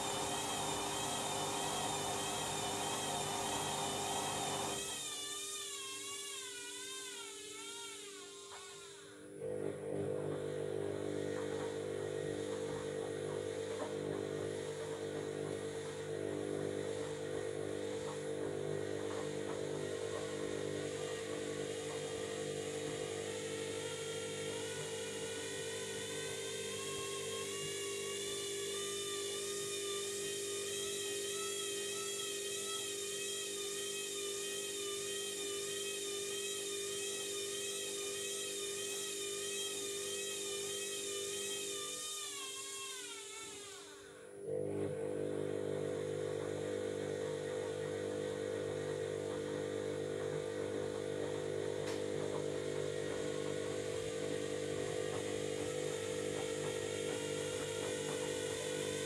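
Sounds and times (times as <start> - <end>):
washing machine spinning: 0.0 - 5.1, 9.4 - 28.1, 44.6 - 59.0.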